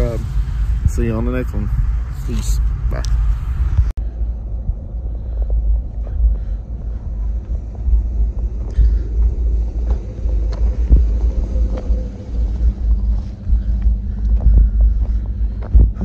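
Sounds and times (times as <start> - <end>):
footsteps crunching in snow: 6.0 - 16.0.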